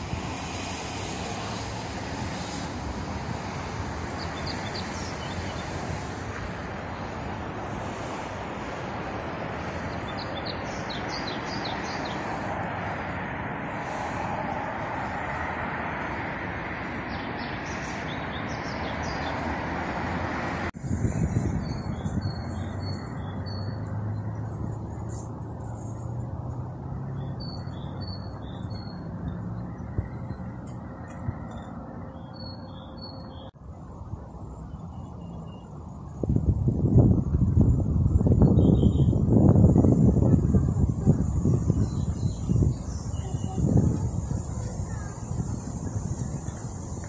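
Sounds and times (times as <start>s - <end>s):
outdoor background rush: 0.0s - 47.0s
small birds chirping: 3.9s - 13.2s, 16.7s - 20.4s, 21.1s - 26.3s, 27.0s - 33.6s, 39.8s - 47.0s.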